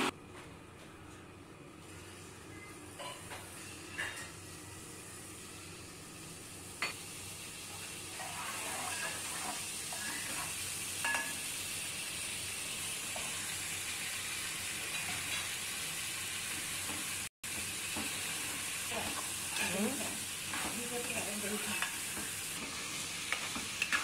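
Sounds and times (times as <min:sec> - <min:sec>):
spices sizzling in hot oil: 0:01.8 - 0:24.0
spatula scraping pot: 0:08.1 - 0:10.5.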